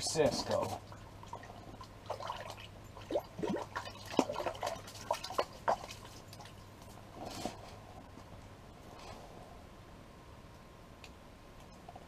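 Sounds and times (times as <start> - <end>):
water dripping and splashing: 0.0 - 7.0.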